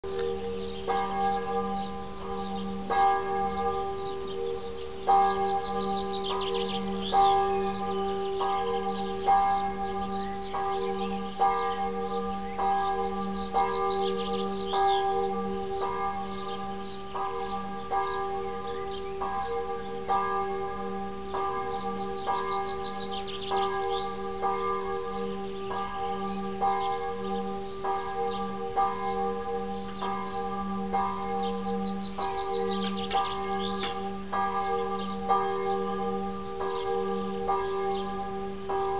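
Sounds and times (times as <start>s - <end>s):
church bells chiming: 0.0s - 38.9s.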